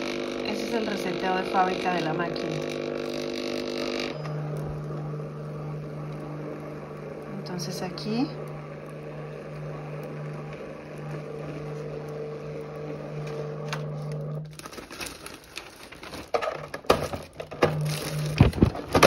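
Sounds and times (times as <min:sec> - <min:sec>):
stencil copier motor humming: 0:00.0 - 0:19.0
paper rustling: 0:13.2 - 0:19.0.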